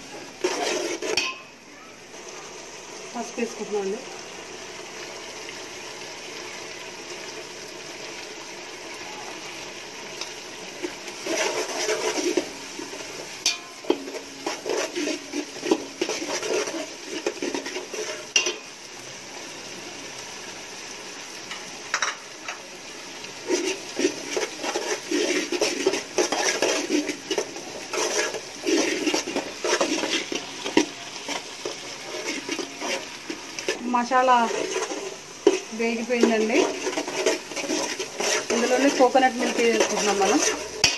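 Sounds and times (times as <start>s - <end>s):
spices frying in oil sizzling: 0.0s - 40.9s
spatula scraping steel pot: 0.4s - 1.5s, 10.8s - 18.6s, 23.4s - 40.9s.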